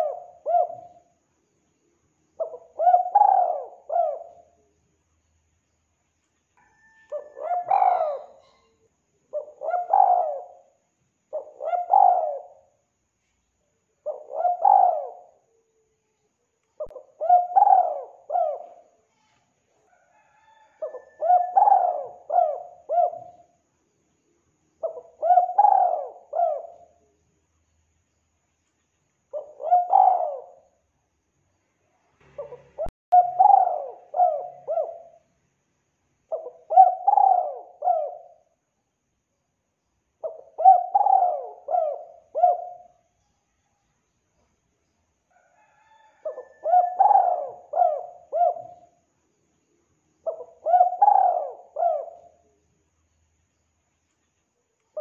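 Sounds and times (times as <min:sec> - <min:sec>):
dove cooing: 0:00.0 - 0:01.1, 0:02.4 - 0:04.7, 0:06.6 - 0:12.8, 0:14.0 - 0:15.7, 0:16.8 - 0:19.0, 0:19.9 - 0:23.6, 0:24.8 - 0:27.1, 0:29.3 - 0:30.8, 0:32.3 - 0:35.2, 0:36.3 - 0:38.6, 0:40.2 - 0:43.0, 0:45.4 - 0:49.0, 0:50.2 - 0:52.5.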